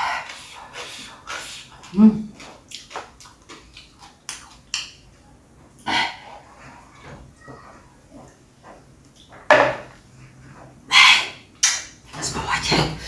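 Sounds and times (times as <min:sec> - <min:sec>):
quiet chewing: 0:00.1 - 0:09.4.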